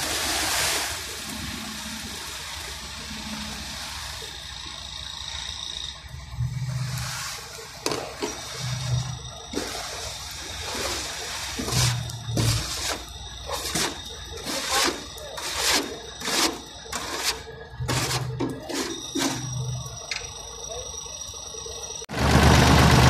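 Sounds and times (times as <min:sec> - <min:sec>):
machine hum: 0:01.0 - 0:23.0
shovel scraping steel chute: 0:06.6 - 0:19.8.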